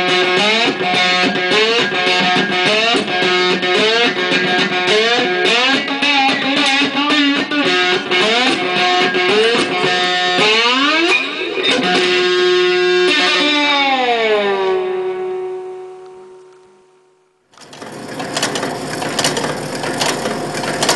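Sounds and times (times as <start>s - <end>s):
amplified slide guitar notes: 0.0s - 16.7s.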